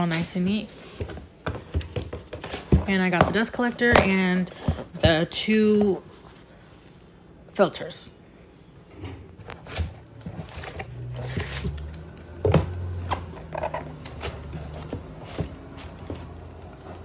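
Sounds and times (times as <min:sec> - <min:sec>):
cardboard boxes knocking and scraping: 0:00.8 - 0:06.2, 0:09.6 - 0:16.4.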